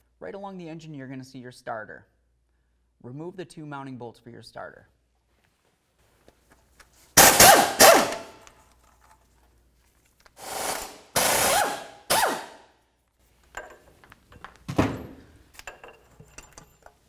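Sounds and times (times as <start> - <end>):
power tool spinning socket: 10.3 - 12.5.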